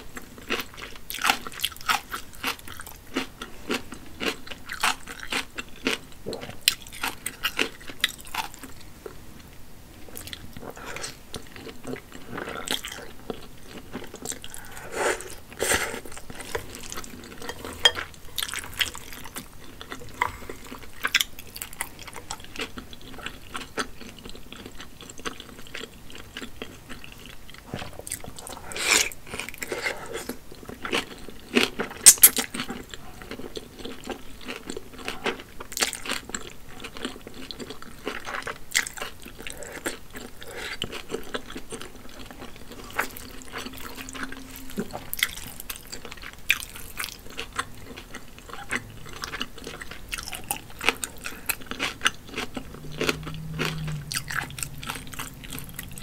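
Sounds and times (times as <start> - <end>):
wet chewing and smacking: 0.2 - 9.2, 10.1 - 56.0
slurping noodles: 14.4 - 17.9.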